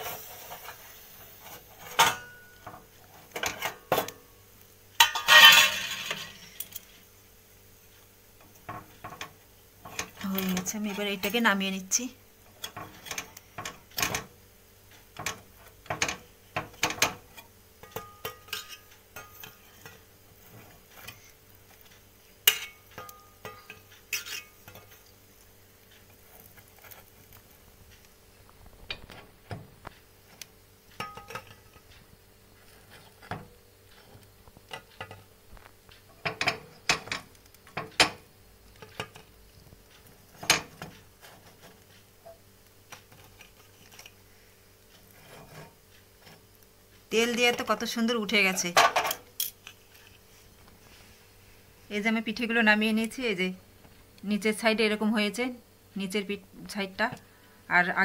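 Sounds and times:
metal knife scraping a pan: 0.0 - 4.1, 5.0 - 6.9, 15.2 - 25.1, 40.3 - 42.4, 45.0 - 46.5.

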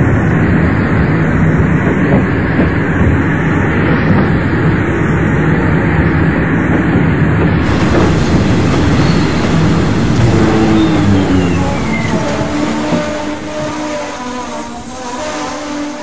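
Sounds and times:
train rumbling into station: 0.0 - 16.0
faint high tone sliding down: 8.8 - 13.5.

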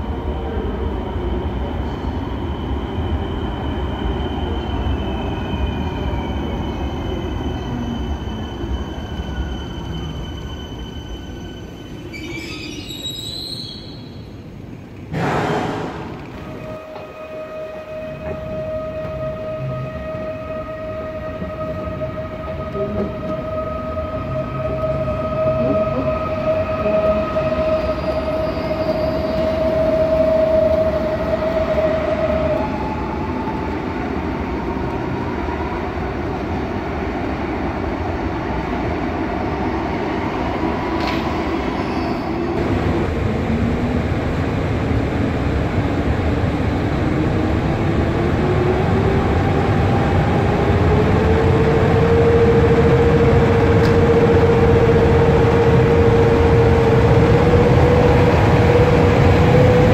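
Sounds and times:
electric train high whine: 0.0 - 59.9
train rolling noise: 0.0 - 59.9
locomotive whine rising in pitch: 16.1 - 35.5, 40.7 - 59.9.

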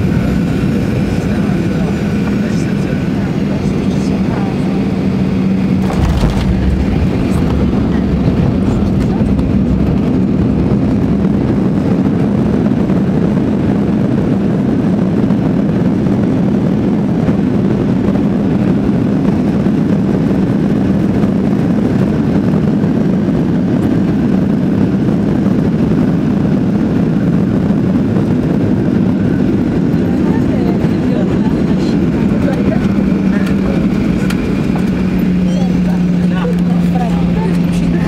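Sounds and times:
jet engine cabin hum: 0.0 - 38.0.

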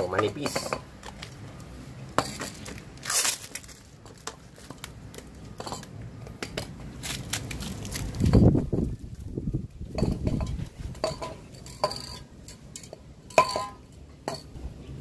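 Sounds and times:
spray cans clinking and knocking: 0.0 - 1.3, 9.9 - 14.6
plastic bag crinkling: 3.0 - 4.7, 7.0 - 9.4.

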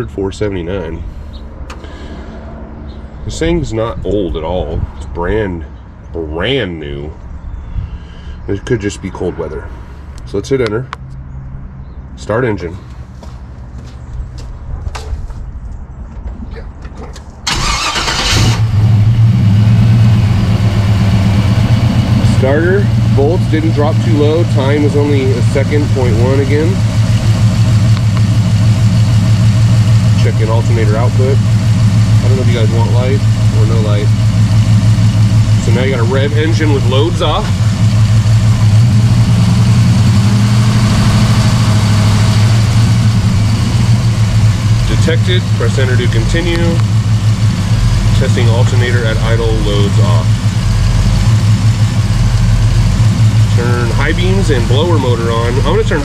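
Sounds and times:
car engine starter cranking: 17.5 - 19.0
car engine idling: 17.5 - 56.0.

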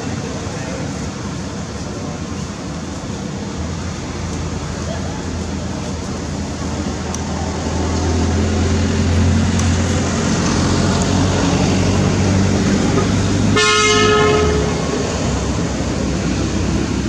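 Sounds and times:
vehicle engine humming: 0.0 - 17.0
vehicle horn: 13.0 - 15.1.

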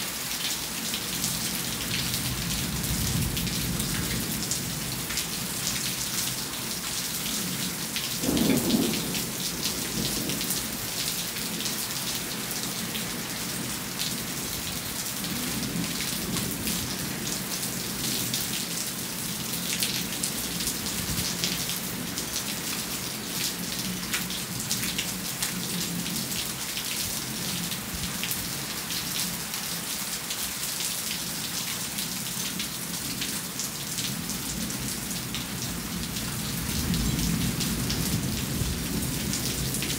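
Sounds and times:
steady rain falling: 0.0 - 39.9
raindrops ticking on hard surfaces: 0.3 - 39.9
low rumble of thunder: 2.0 - 5.9, 7.4 - 11.0, 34.1 - 39.9.

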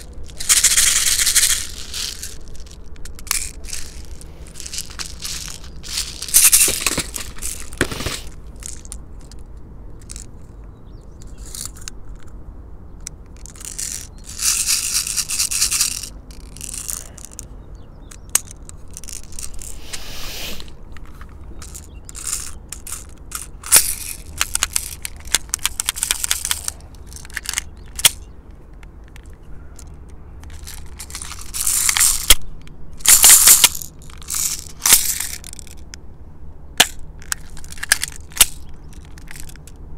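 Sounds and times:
gas hissing into magazine: 19.8 - 20.7.

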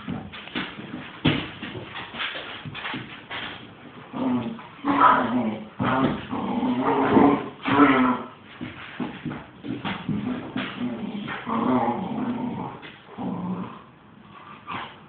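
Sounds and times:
dogs growling and whining: 4.1 - 8.4, 10.2 - 15.0.

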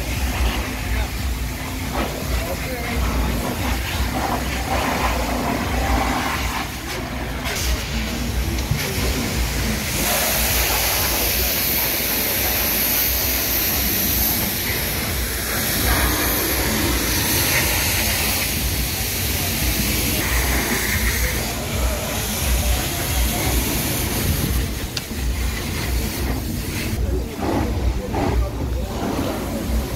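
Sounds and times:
loud steady hiss: 0.0 - 29.9.

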